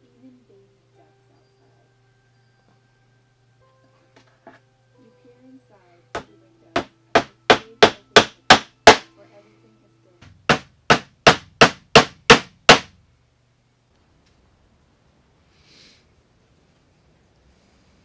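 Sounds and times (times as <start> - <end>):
hammer driving tacks into wood: 6.2 - 9.1, 10.2 - 12.9.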